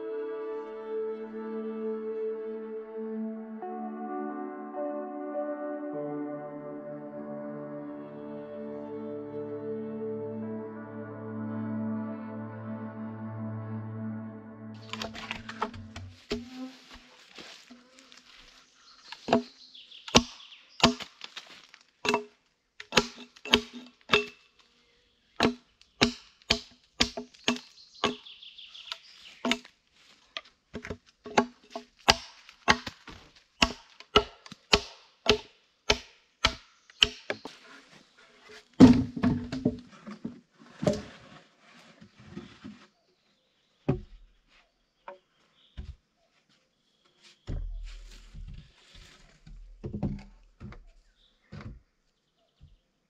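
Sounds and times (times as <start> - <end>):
axe striking wooden post: 14.8 - 16.5, 19.2 - 21.2, 22.0 - 24.4, 25.4 - 28.3, 29.4 - 29.7, 30.7 - 37.4.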